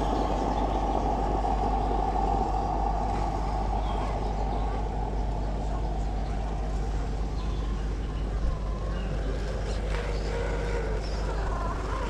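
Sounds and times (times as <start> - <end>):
constant low hum: 0.0 - 12.0
vehicle engine drone: 0.0 - 12.0.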